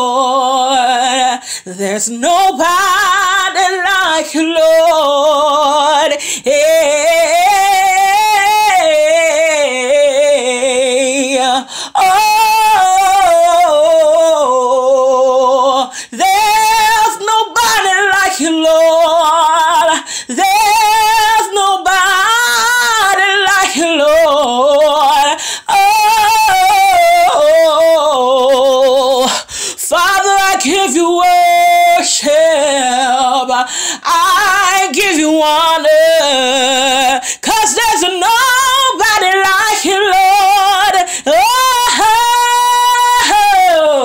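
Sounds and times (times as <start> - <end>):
woman singing with vibrato: 0.0 - 44.0
singer breathing: 1.4 - 1.7, 6.2 - 6.5, 11.6 - 12.0, 15.9 - 16.2, 20.0 - 20.3, 25.4 - 25.7, 29.2 - 29.9, 33.6 - 34.1, 37.2 - 37.4, 41.0 - 41.3.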